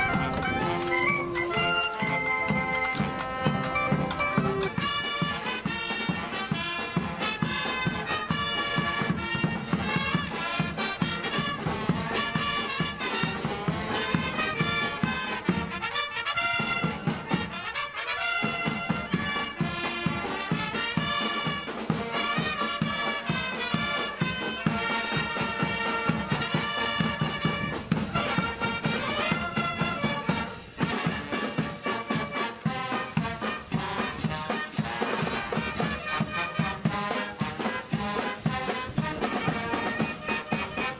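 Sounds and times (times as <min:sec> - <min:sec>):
marching wind band playing: 0:00.0 - 0:40.9.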